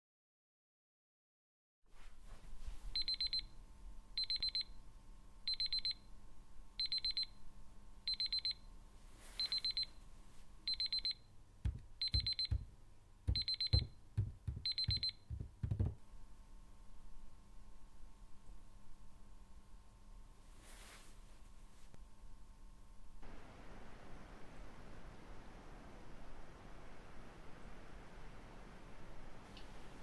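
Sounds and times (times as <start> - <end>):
phone alarm beeping: 3.0 - 3.5, 4.2 - 4.7, 5.5 - 6.0, 6.8 - 7.4, 8.1 - 8.6, 9.4 - 9.9, 10.7 - 12.7, 13.3 - 15.5
low knocks: 11.7 - 12.7, 13.3 - 16.0.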